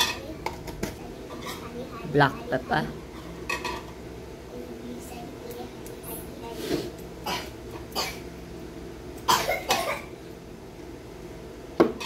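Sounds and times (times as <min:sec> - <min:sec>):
woman coughing: 0:09.3 - 0:10.1.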